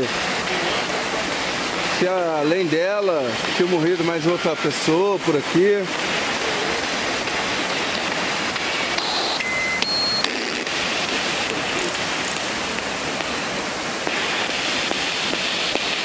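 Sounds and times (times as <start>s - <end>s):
waterfall rushing: 0.0s - 16.0s
short electronic beeps: 9.0s - 10.6s.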